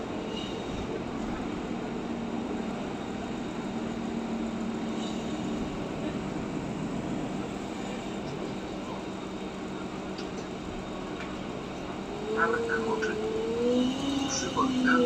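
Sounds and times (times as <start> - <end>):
bus engine hum: 0.0 - 15.0
road noise: 0.0 - 15.0.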